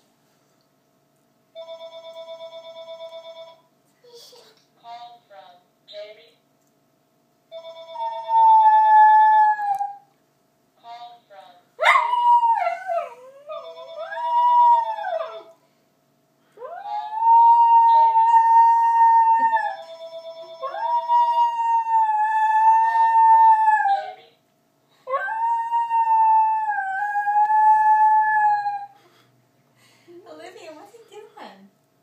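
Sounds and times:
phone ringing: 1.6s - 3.7s, 7.5s - 8.3s, 13.6s - 14.3s, 19.7s - 20.8s
dog howling: 11.8s - 15.5s, 16.6s - 19.8s, 20.6s - 24.2s, 25.1s - 29.0s.

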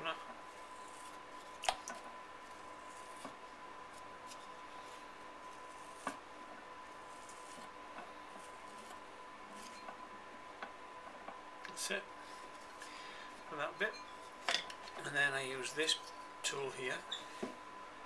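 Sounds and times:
tool scraping clay: 0.4s - 1.7s, 2.4s - 6.2s, 6.9s - 9.9s.

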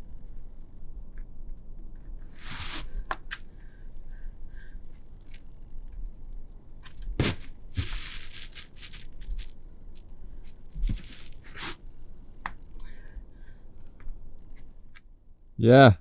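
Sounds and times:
climbing shoes scraping on rock: 10.8s - 11.8s.

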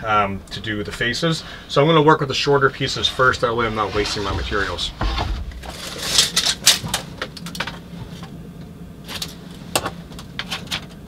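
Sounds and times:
faint steady hum: 0.0s - 11.0s
wooden boards thumping: 3.6s - 6.2s.

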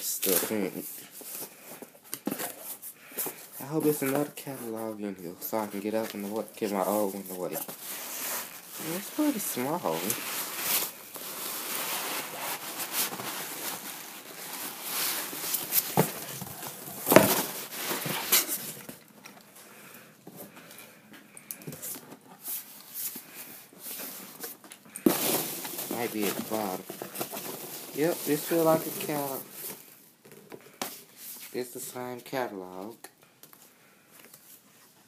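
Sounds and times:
hands rustling packing peanuts: 2.6s - 20.0s, 21.8s - 30.0s.

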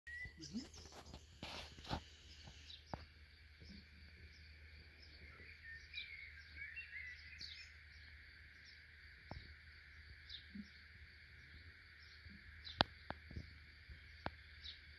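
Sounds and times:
distant bird chirps: 0.1s - 14.9s.

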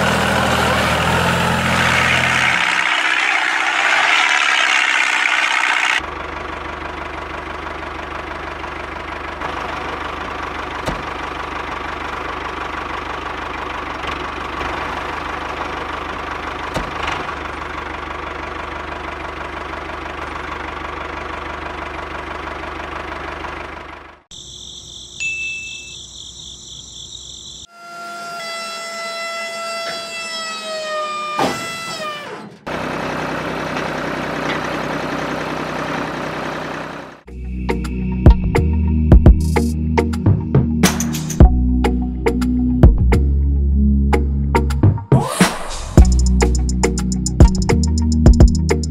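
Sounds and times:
small motor running: 2.2s - 6.0s
high steady tones: 2.4s - 6.0s.

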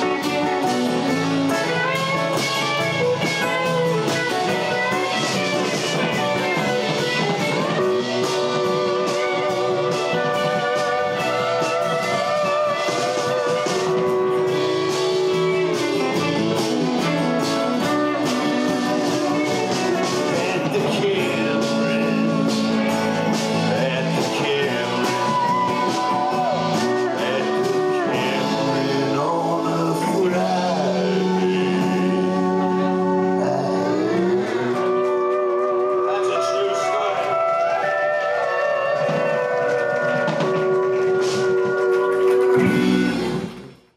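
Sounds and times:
band playing folk-rock: 0.0s - 43.9s.

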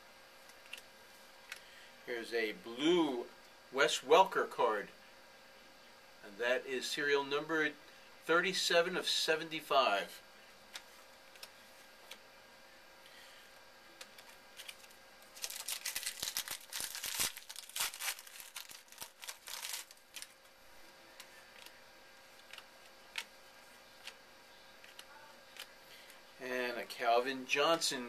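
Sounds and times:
wrapper crinkling and tearing: 14.2s - 20.5s.

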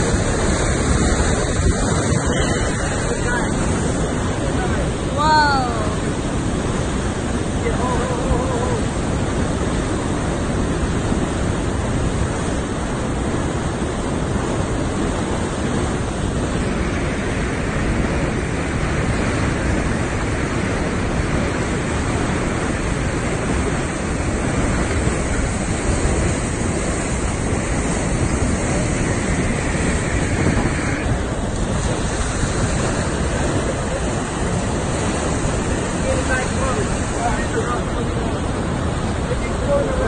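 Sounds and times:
churning river water rushing: 0.0s - 40.0s
wind noise on microphone: 0.0s - 40.0s.

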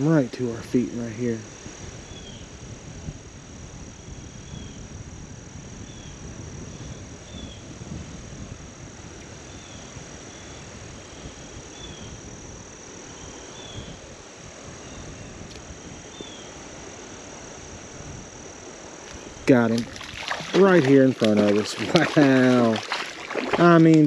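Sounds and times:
crickets and insects droning: 0.0s - 24.0s.

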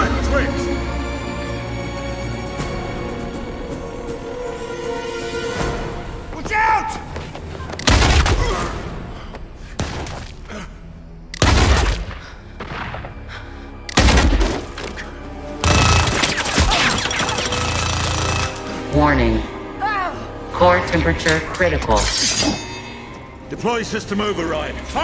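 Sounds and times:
dramatic film music: 0.0s - 25.0s
heavy gunshots echoing: 11.4s - 13.1s, 14.0s - 14.8s.

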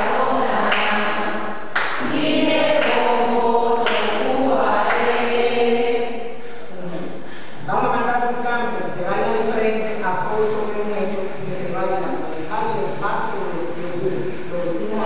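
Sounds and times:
group of voices chanting: 0.0s - 6.3s.

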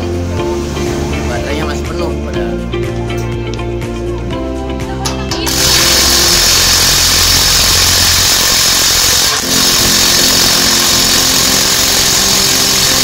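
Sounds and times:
impact wrench hammering: 5.3s - 13.0s.

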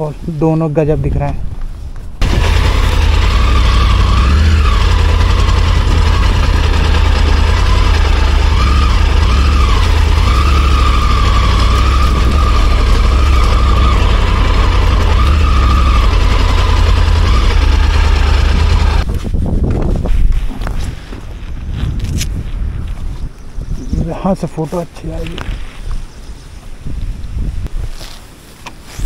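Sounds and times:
motorcycle engine running: 2.2s - 19.1s.

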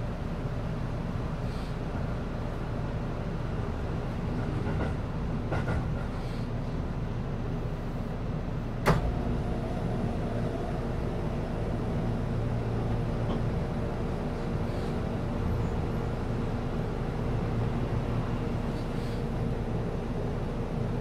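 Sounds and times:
electric train humming: 8.3s - 21.0s.

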